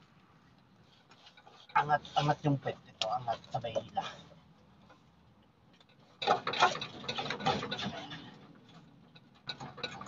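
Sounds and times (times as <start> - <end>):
rapid metallic clicking and clattering: 5.7 - 10.0.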